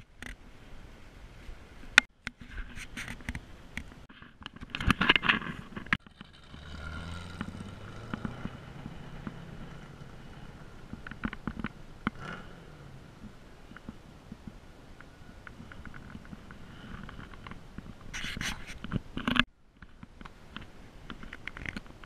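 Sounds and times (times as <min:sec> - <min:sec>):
vehicle engine humming: 0:05.2 - 0:22.0
camera handling clicks and scrapes: 0:18.1 - 0:19.5.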